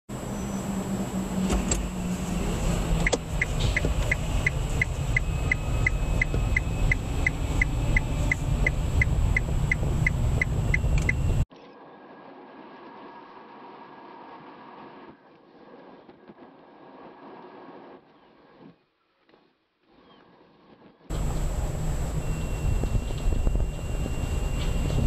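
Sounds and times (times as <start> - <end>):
low car cabin rumble: 0.1 - 11.5, 21.1 - 25.0
turn signal ticking: 2.8 - 11.4.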